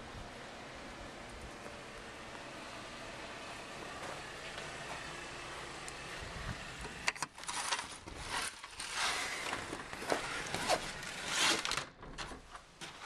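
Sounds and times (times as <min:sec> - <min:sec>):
door scraping and rustling: 0:06.8 - 0:13.0.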